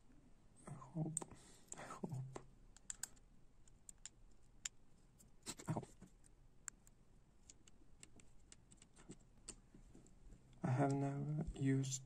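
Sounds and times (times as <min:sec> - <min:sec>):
small parts clicking and tapping: 0:01.1 - 0:09.6.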